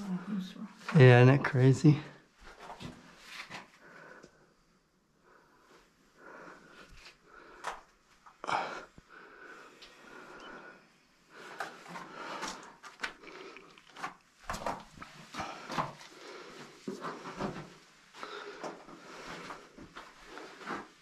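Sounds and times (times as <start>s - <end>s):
scrapes and knocks in rock cave: 13.8s - 16.1s.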